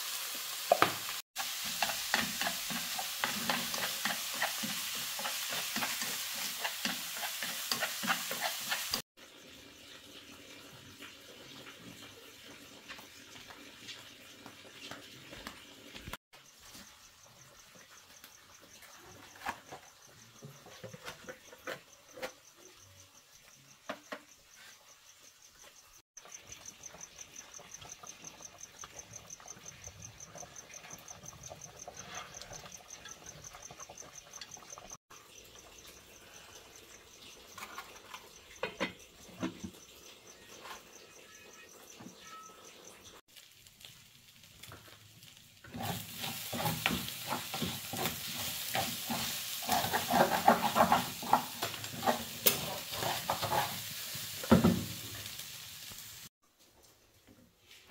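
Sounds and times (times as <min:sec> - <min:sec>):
food sizzling in a wok: 0:00.0 - 0:56.3
insects trilling: 0:16.4 - 0:43.2.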